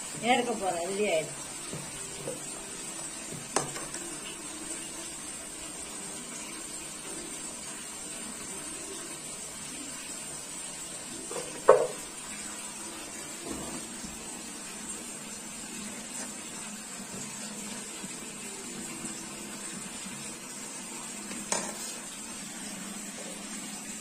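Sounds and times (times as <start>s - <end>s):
soft simmering hiss: 0.0s - 24.0s
ladle knocking against pot: 11.4s - 12.0s.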